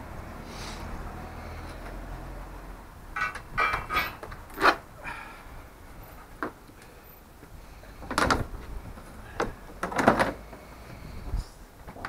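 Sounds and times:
plastic knocks and scraping: 0:09.4 - 0:10.6.

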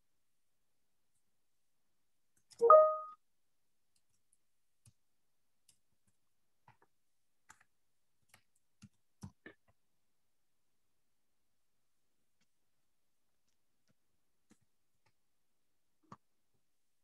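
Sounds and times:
upward gliding tone: 0:02.6 - 0:03.1.

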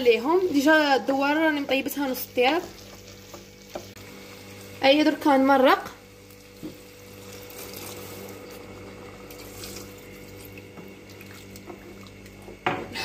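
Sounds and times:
water pouring into a pot: 0:06.4 - 0:12.4.

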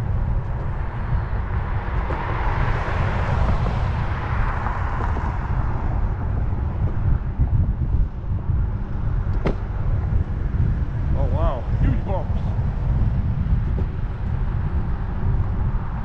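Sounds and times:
road and tyre hiss: 0:00.0 - 0:07.7
wind buffeting microphone: 0:00.0 - 0:16.0.

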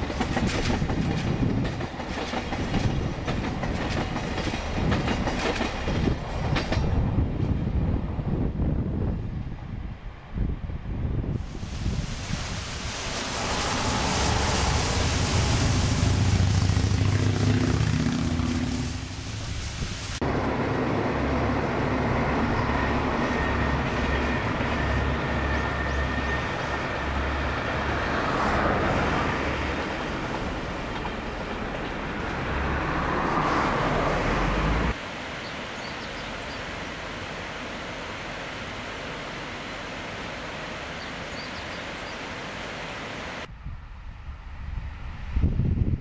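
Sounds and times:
diesel train drone: 0:00.0 - 0:46.0
waterfall rushing: 0:11.4 - 0:20.5
rocky river rushing: 0:12.1 - 0:19.6.

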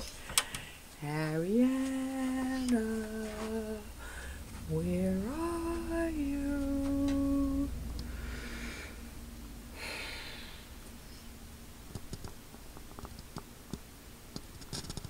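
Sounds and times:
soft breaths: 0:00.0 - 0:01.0, 0:01.8 - 0:04.7, 0:07.8 - 0:11.5.

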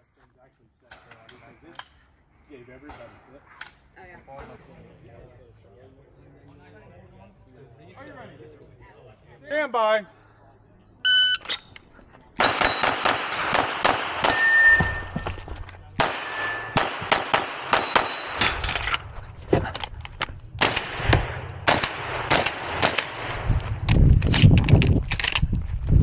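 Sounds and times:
rapid gunfire: 0:12.4 - 0:14.4, 0:16.0 - 0:18.2, 0:20.6 - 0:23.3
steel targets clanging: 0:12.4 - 0:15.2, 0:16.1 - 0:16.8, 0:17.8 - 0:18.8.

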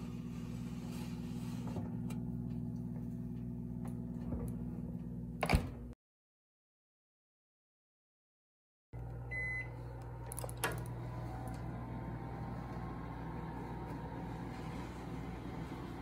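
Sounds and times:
microwave oven beep: 0:09.0 - 0:14.4
steady low hum: 0:09.0 - 0:16.0.

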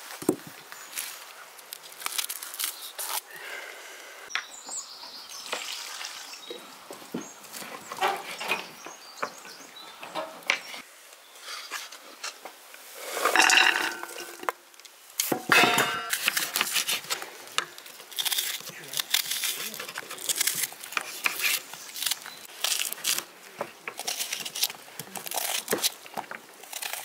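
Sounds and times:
dishes and cutlery clinking: 0:13.3 - 0:14.5, 0:15.4 - 0:16.3
knife cutting onions: 0:16.1 - 0:17.2, 0:18.1 - 0:23.2, 0:24.0 - 0:26.0.

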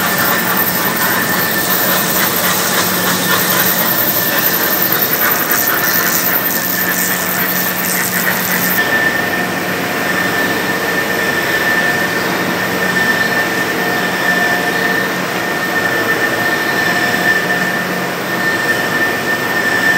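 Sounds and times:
high pulsing hiss: 0:00.0 - 0:08.8
industrial machinery rushing: 0:00.0 - 0:08.8
low machine hum: 0:00.0 - 0:08.8
high machine whine: 0:00.0 - 0:19.9.

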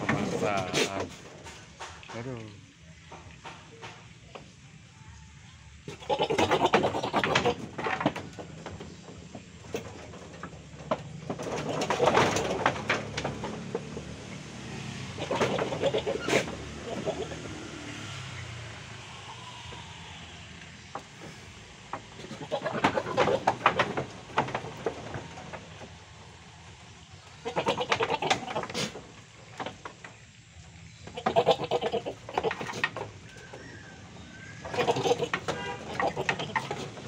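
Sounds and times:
goats bleating: 0:05.9 - 0:07.7, 0:15.2 - 0:17.5, 0:22.2 - 0:23.5, 0:27.4 - 0:29.0, 0:31.1 - 0:32.7, 0:34.7 - 0:37.0
hooves knocking on floor: 0:06.5 - 0:17.6, 0:20.8 - 0:26.7, 0:34.7 - 0:37.0.

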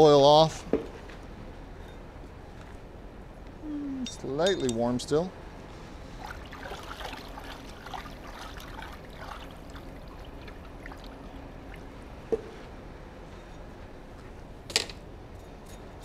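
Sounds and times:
water sloshing in a tub: 0:06.0 - 0:12.8
small splashes and clinks: 0:06.2 - 0:12.0.

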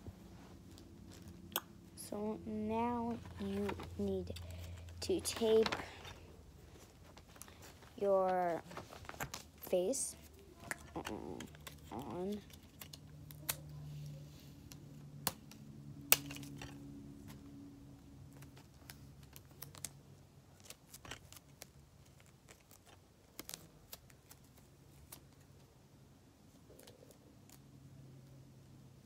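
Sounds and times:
sticky tape pulled and torn: 0:10.6 - 0:13.8.

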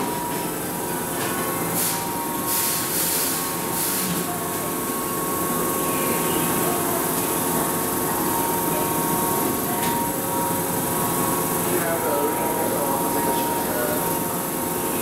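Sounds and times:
short air hisses: 0:01.8 - 0:04.2.

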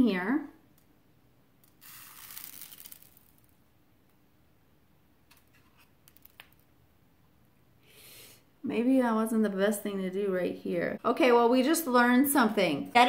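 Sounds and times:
seeds pattering into feeder tray: 0:01.6 - 0:03.6.

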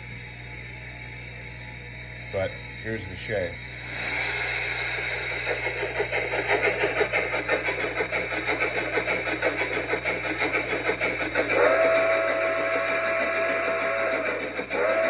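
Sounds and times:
steam locomotive chuffing: 0:00.0 - 0:15.0
steam whistle: 0:11.5 - 0:15.0.

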